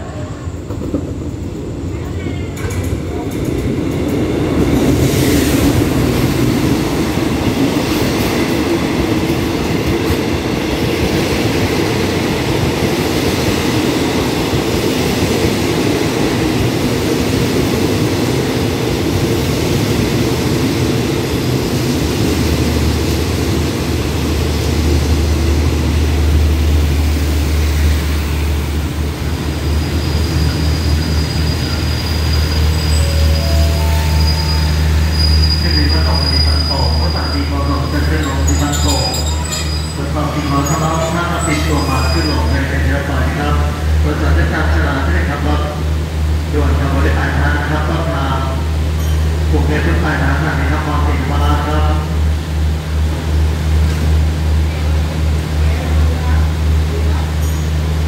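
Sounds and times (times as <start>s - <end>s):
train wheels rumbling on rails: 0.0s - 58.0s
high brake squeal: 29.8s - 42.6s.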